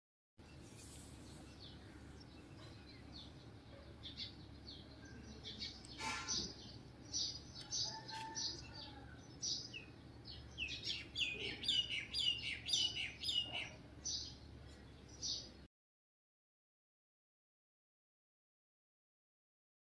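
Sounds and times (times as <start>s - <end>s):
small birds chirping: 0.4s - 15.7s.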